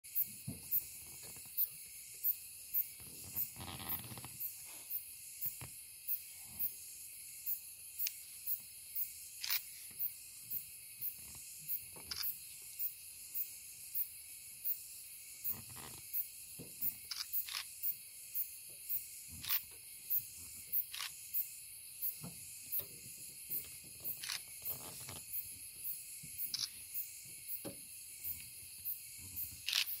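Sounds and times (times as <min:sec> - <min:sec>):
high-pitched insect chorus: 0:00.1 - 0:30.0
sharp insect chirp: 0:00.1 - 0:30.0.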